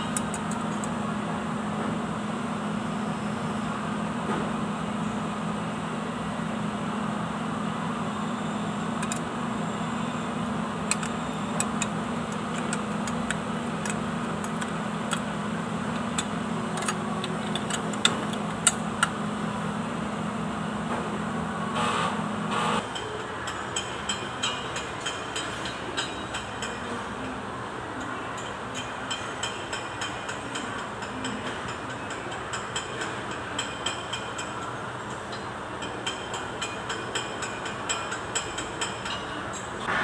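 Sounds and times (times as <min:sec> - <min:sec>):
machine hum: 0:00.0 - 0:23.0.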